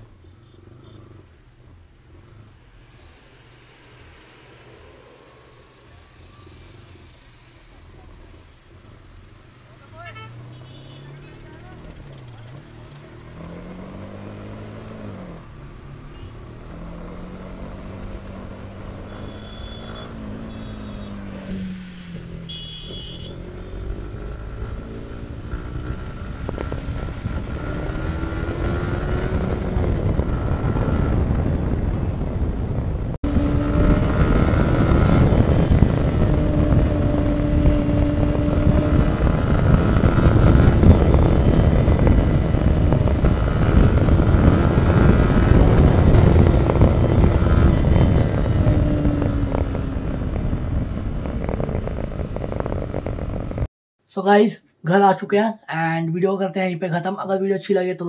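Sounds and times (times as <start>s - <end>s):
motorcycle engine running: 17.0s - 53.7s.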